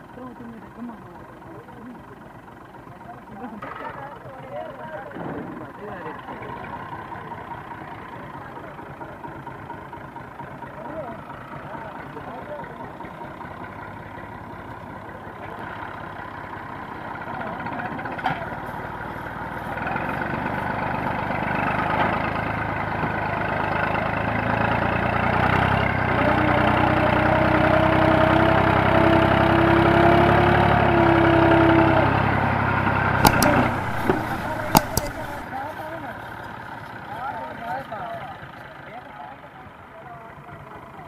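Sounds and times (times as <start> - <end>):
tractor diesel engine revving: 19.8 - 35.4.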